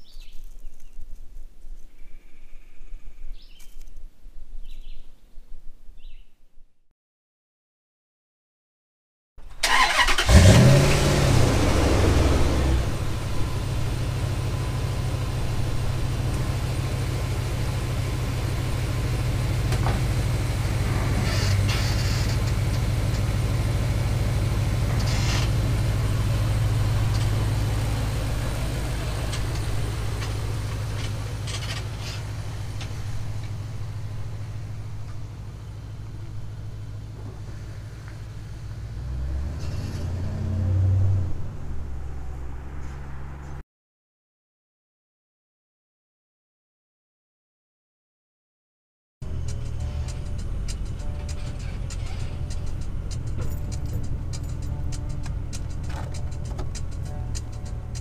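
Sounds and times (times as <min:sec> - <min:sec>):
truck engine running: 0:09.4 - 0:43.6, 0:49.2 - 0:58.0
truck creaking: 0:19.6 - 0:23.4, 0:24.0 - 0:35.3, 0:49.3 - 0:58.0.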